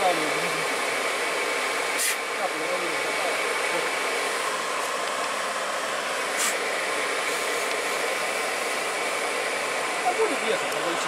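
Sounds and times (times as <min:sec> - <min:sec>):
radiator cooling fan whooshing hum: 0:00.0 - 0:11.0.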